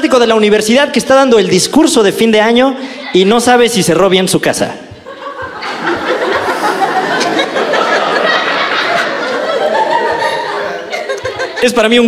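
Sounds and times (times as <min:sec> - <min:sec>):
audience laughing: 0:04.9 - 0:12.0.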